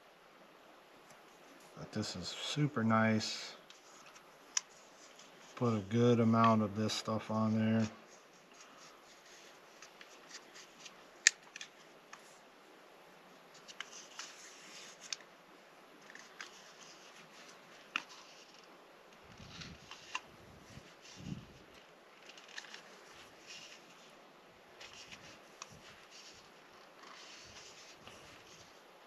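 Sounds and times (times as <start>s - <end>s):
tape and plastic crackling: 7.8s - 12.4s, 13.5s - 15.3s, 16.0s - 24.1s, 24.8s - 28.8s.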